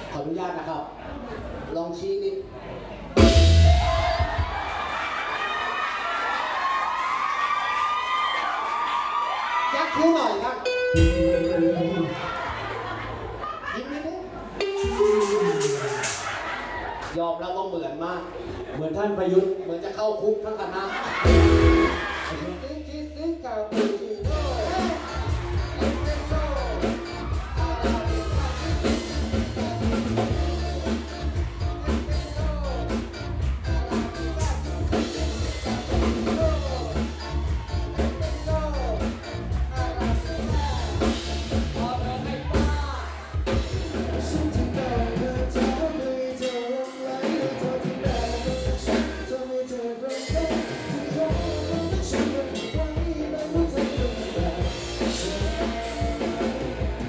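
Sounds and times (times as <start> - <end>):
bass guitar: 2.9 - 4.8, 10.1 - 13.4, 14.2 - 17.0, 21.0 - 57.0
drum kit beat: 3.2 - 5.0, 10.8 - 12.8, 14.6 - 16.8, 21.1 - 57.0
electric guitar: 10.6 - 13.0, 14.6 - 16.2, 21.2 - 22.5, 24.2 - 57.0
men singing: 24.2 - 30.6, 43.5 - 57.0.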